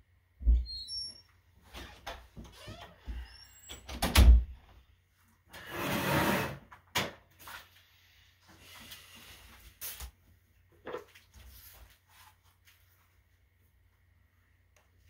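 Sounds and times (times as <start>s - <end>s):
knocks and creaks: 0.4s - 4.3s.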